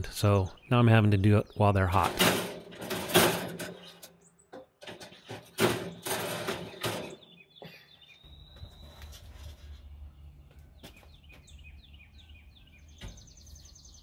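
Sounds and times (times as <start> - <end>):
birds chirping faintly: 0.0 - 14.0
metal grill racks scraping and clanking: 2.0 - 4.2, 4.8 - 7.3.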